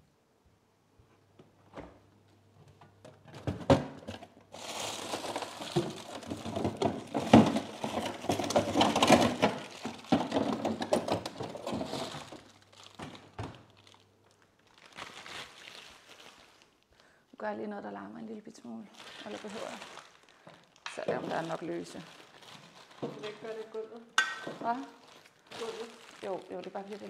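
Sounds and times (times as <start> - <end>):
ice bag knocks and thuds: 3.4 - 13.7
plastic bag crinkling: 4.0 - 17.3, 18.6 - 27.0.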